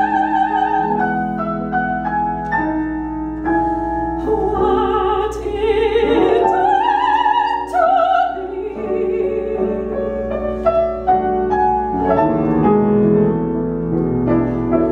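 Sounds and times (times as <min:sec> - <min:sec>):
female opera singer: 0:00.0 - 0:01.4, 0:04.2 - 0:10.4
grand piano: 0:00.0 - 0:14.9.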